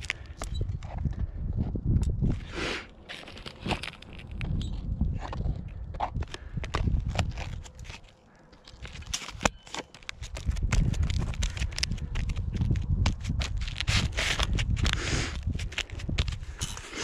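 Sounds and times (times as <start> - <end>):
glove scuffing gritty shingles: 2.2 - 17.0.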